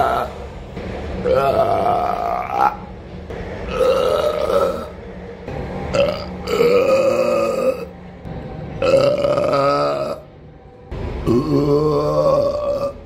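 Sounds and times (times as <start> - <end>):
man burping loudly: 1.2 - 2.8, 3.7 - 4.9, 5.9 - 7.9, 8.8 - 10.2, 11.2 - 13.0.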